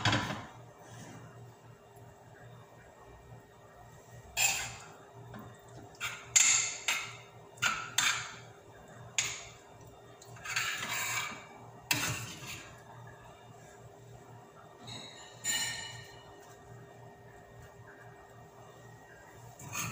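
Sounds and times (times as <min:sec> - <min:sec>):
metal spoon clanking on frying pan: 0:06.2 - 0:08.4.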